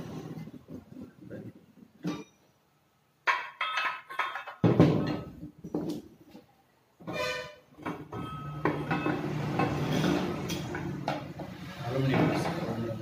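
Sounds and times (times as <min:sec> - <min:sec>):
rough scraping noise: 0:09.2 - 0:13.0.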